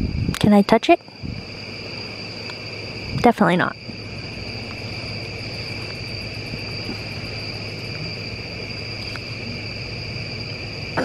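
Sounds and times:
insects trilling: 0.0s - 11.0s
low steady hum: 0.0s - 11.0s.

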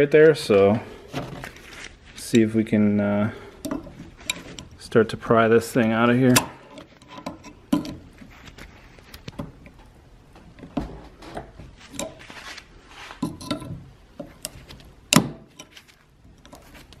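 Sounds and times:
pliers scraping metal: 3.6s - 4.8s, 6.2s - 8.2s, 13.1s - 17.0s.

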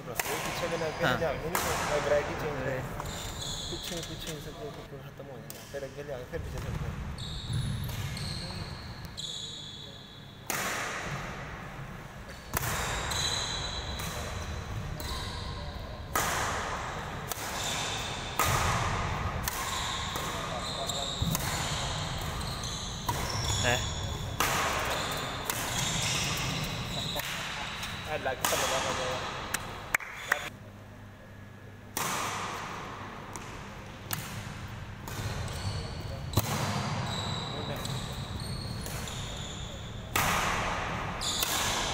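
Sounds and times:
racket hitting shuttlecock: 0.1s - 0.7s, 1.5s - 2.2s, 10.4s - 11.5s, 12.5s - 13.2s, 16.1s - 22.4s, 23.0s - 23.4s, 24.3s - 30.1s, 31.9s - 35.5s, 36.3s - 37.0s, 38.8s - 39.2s, 40.1s - 41.9s
shoe squeaks: 2.4s - 4.8s, 7.1s - 10.4s, 12.3s - 15.8s, 19.7s - 29.1s, 35.3s - 40.1s, 41.2s - 41.8s.

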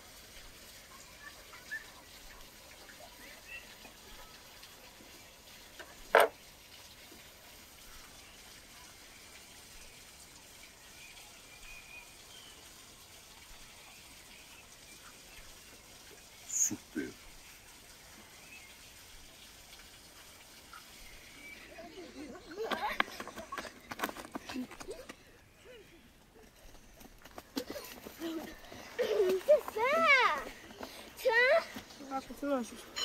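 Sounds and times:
faint bird chirps: 1.0s - 4.4s.

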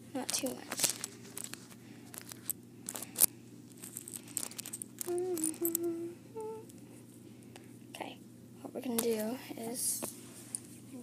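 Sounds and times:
person humming: 5.0s - 6.8s.

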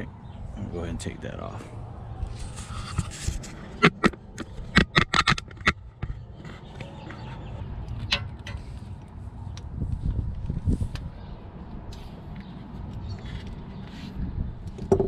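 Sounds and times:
rumbling handling noise with knocks: 2.3s - 9.1s, 14.6s - 15.0s.

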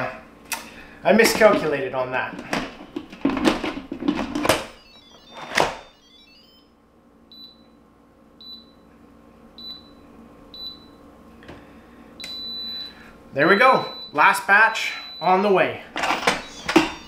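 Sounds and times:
short high beeps: 4.7s - 6.6s, 16.4s - 17.0s.

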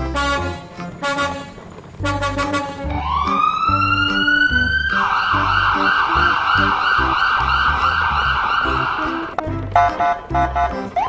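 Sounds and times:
background music: 0.0s - 11.0s
siren winding up and warbling: 3.0s - 9.4s.

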